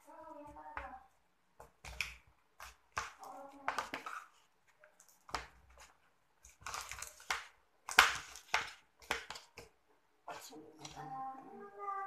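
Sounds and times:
slime squishing: 0:01.7 - 0:11.0.

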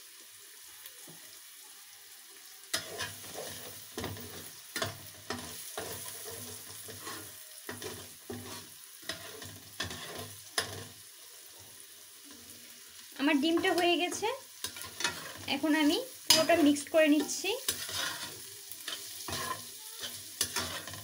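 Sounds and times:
eggs sizzling in frying pan: 0:00.0 - 0:21.0
spatula scraping pan: 0:02.7 - 0:11.1, 0:13.4 - 0:21.0.

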